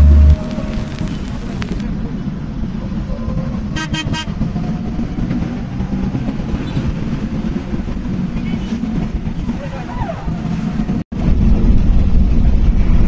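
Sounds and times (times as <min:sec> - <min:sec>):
car horn toots: 0:00.0 - 0:01.8, 0:03.8 - 0:04.4
vehicle engine and road rumble: 0:00.0 - 0:13.0.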